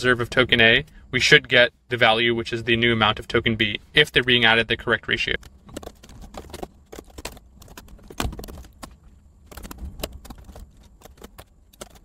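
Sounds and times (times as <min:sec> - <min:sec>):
keyboard key clicks: 0:05.4 - 0:12.0.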